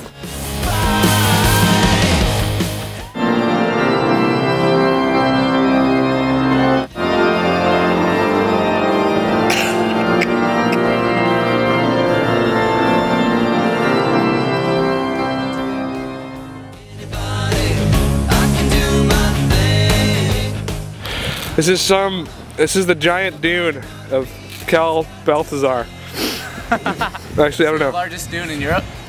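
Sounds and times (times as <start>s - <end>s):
pipe organ chords: 3.2s - 16.8s.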